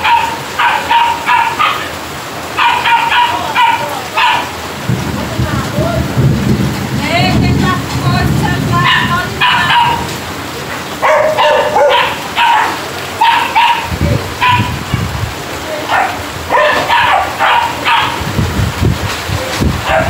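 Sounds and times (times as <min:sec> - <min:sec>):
dog barking: 0:00.0 - 0:04.6, 0:08.8 - 0:10.2, 0:11.0 - 0:15.1, 0:15.8 - 0:18.4
heavy rain hissing: 0:00.0 - 0:20.0.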